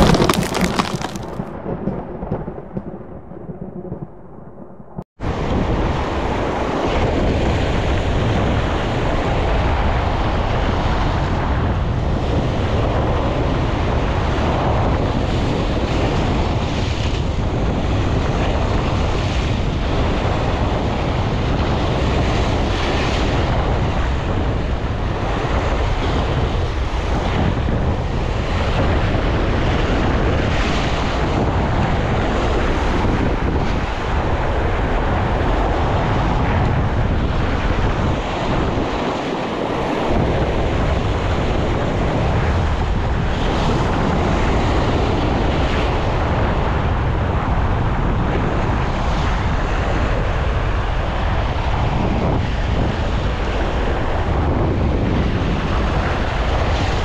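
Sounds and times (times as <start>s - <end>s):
surf breaking on rocks: 0.0s - 1.5s
wind buffeting microphone: 0.0s - 57.0s.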